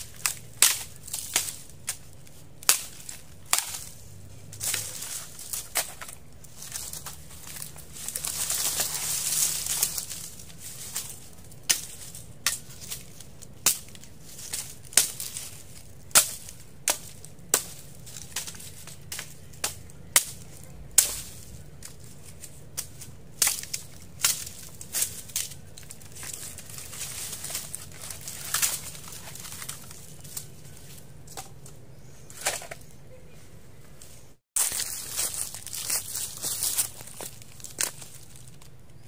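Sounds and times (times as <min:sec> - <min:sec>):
dry leaves and sticks rustling: 0:00.0 - 0:39.0
machete chopping wood: 0:00.1 - 0:02.0, 0:02.6 - 0:26.6.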